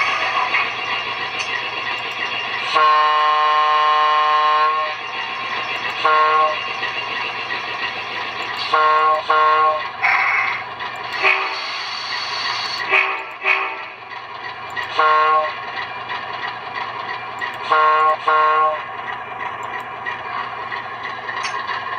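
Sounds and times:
idling engine sound: 0.0s - 2.8s, 4.6s - 21.9s
model train diesel horn: 2.6s - 5.0s, 6.0s - 6.6s, 8.6s - 9.9s, 11.1s - 11.7s, 12.8s - 14.0s, 14.9s - 15.6s, 17.6s - 18.9s.

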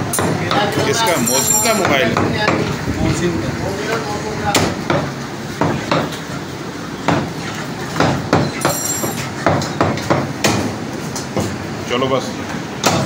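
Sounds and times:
cleaver chopping meat on wood: 4.5s - 6.2s, 7.0s - 7.3s, 8.0s - 8.8s, 9.4s - 11.6s, 12.8s - 13.0s
brief high ringing tone: 8.7s - 9.3s.

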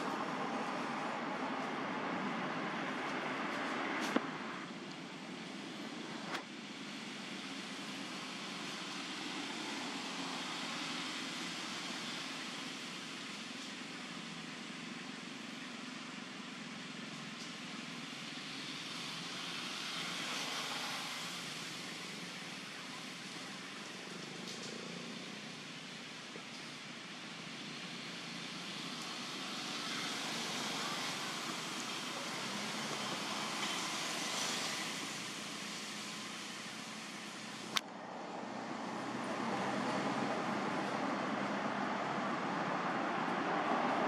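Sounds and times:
outdoor ambient noise: 0.0s - 44.0s.

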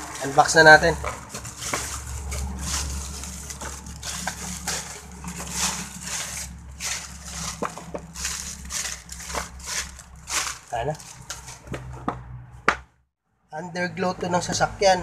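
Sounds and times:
plastic wrapping crinkling: 0.0s - 11.8s.

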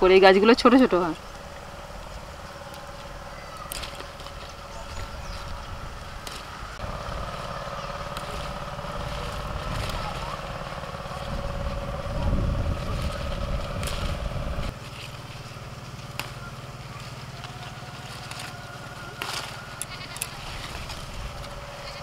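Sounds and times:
tractor engine running: 0.0s - 22.0s
bean pods snapping: 2.7s - 4.6s, 6.0s - 6.6s, 13.0s - 14.8s, 16.1s - 16.5s, 17.4s - 21.6s.

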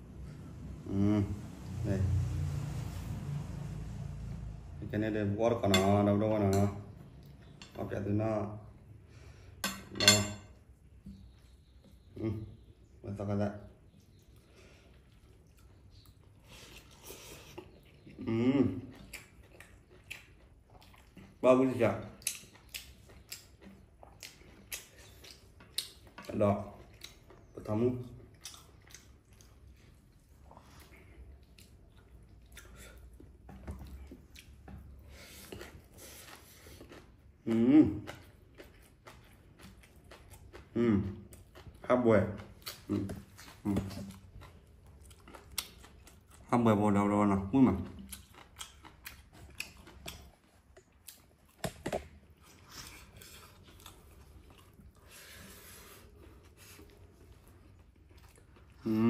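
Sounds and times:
person chewing: 13.9s - 21.4s, 22.0s - 46.8s, 47.5s - 59.0s.

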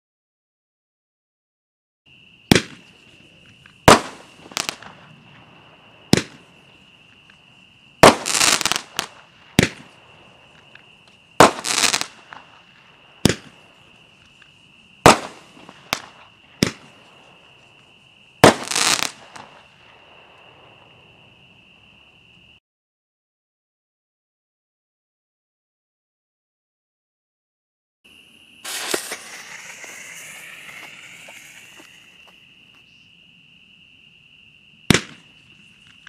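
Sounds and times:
firework pops and crackle: 2.5s - 5.5s, 6.1s - 7.4s, 8.0s - 20.5s, 28.6s - 32.4s, 34.9s - 36.0s.

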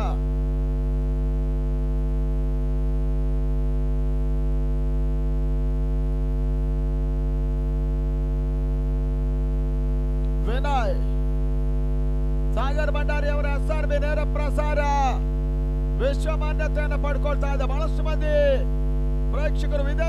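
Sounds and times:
electrical mains hum: 0.0s - 20.0s.

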